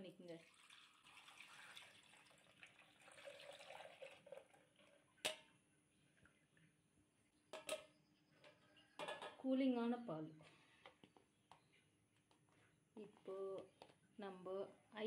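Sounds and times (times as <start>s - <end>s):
milk trickling: 0.3s - 5.2s.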